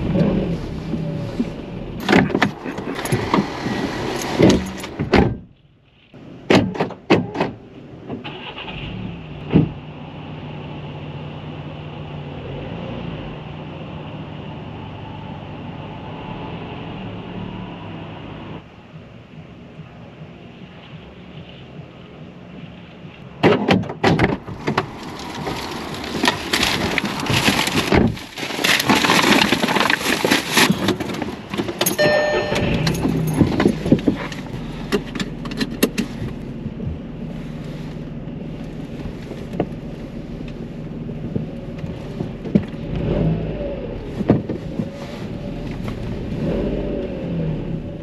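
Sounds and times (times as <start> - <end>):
car engine running and revving: 0.0 - 5.6, 24.3 - 48.0
rustling and clattering: 22.6 - 42.9
keys jangling: 31.8 - 33.8
short electronic beep: 31.9 - 33.0.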